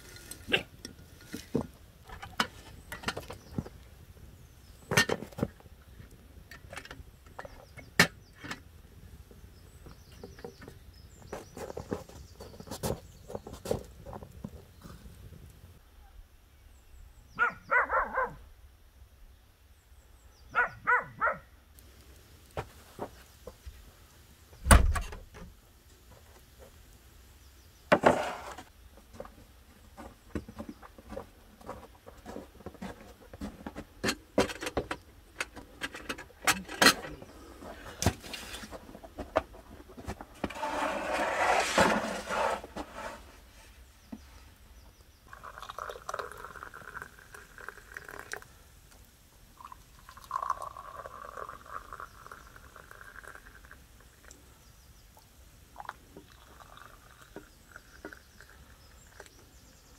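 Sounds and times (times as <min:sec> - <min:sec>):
tea pouring into glasses: 0:45.3 - 0:48.6, 0:49.6 - 0:54.4, 0:55.2 - 0:59.4.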